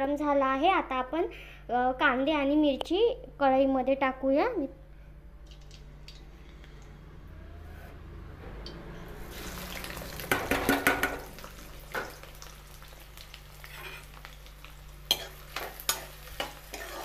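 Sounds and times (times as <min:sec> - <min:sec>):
onions sizzling in hot oil: 0:09.2 - 0:17.0.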